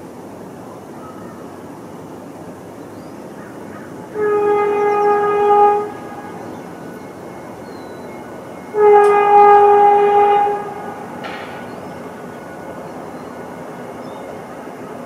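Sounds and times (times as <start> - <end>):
horn blasts: 4.1 - 15.0.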